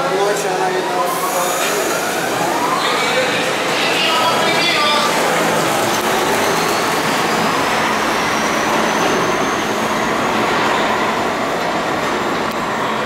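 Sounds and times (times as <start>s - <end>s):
train wheels rumbling on rails: 3.1s - 13.0s.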